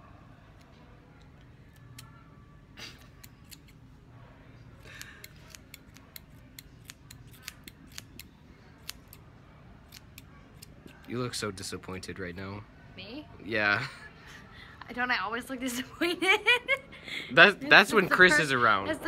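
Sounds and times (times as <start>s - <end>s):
scissors snipping hair: 2.8s - 3.8s, 4.8s - 9.2s, 9.9s - 11.2s.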